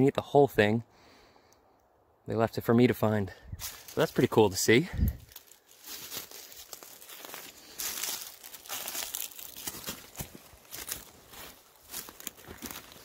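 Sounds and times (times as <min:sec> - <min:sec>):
dry leaves and twigs crunching: 0:03.6 - 0:13.0.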